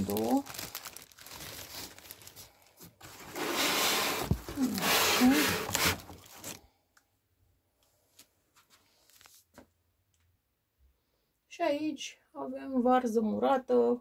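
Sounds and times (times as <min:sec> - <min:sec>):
plastic bag rustling and crinkling: 0:00.0 - 0:06.7.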